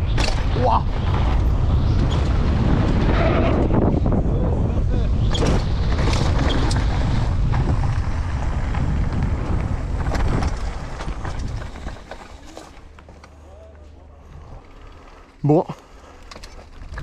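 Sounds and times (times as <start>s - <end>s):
bike knocks and rattles: 0.0s - 3.0s, 5.2s - 13.3s
wind buffeting microphone: 0.0s - 12.2s.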